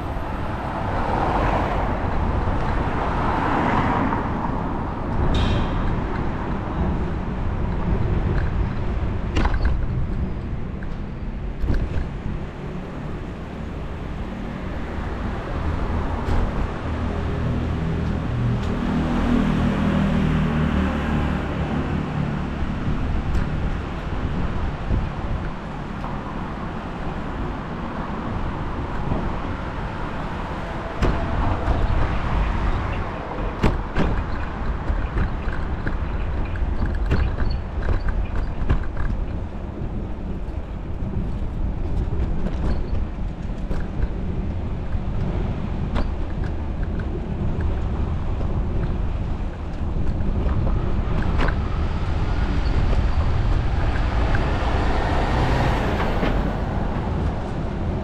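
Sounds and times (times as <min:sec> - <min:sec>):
city traffic: 0:00.0 - 0:58.0
road rumble: 0:00.0 - 0:58.0
wind noise: 0:00.0 - 0:58.0.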